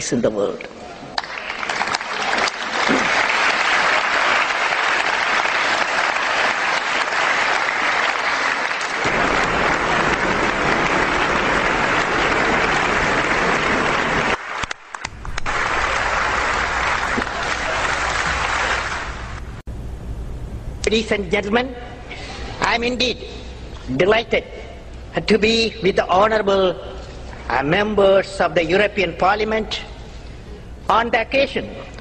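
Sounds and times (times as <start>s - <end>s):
audience applauding: 1.1s - 19.6s.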